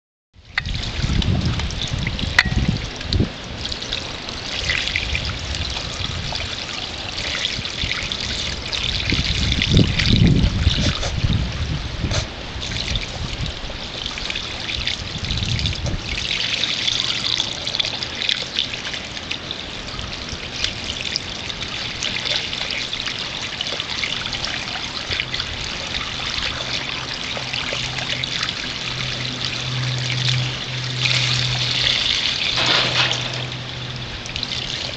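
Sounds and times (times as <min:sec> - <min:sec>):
low rumble: 0:00.4 - 0:06.8, 0:25.2 - 0:34.9
hose water splashing on concrete: 0:00.4 - 0:34.9
low steady hum: 0:00.4 - 0:34.9
puppies lapping water: 0:00.5 - 0:34.9.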